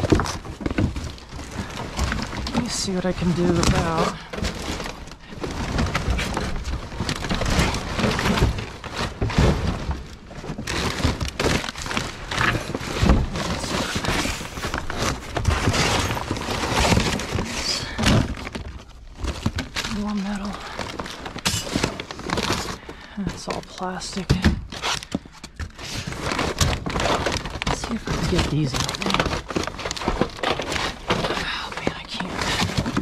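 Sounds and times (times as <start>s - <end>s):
debris clattering in a dumpster: 0.0s - 33.0s.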